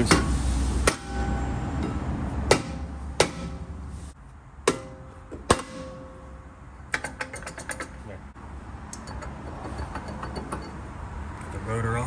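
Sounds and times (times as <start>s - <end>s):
hammer striking brake rotor: 0.0s - 3.8s, 4.6s - 8.1s.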